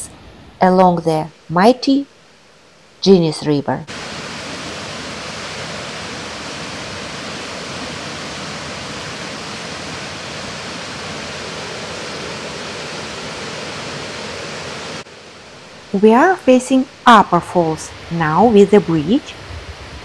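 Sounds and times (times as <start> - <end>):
waterfall rushing: 3.9 - 15.9.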